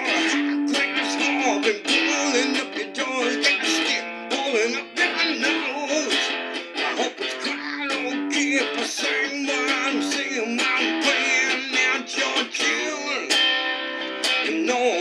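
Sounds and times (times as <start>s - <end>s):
electric guitar: 0.0s - 15.0s.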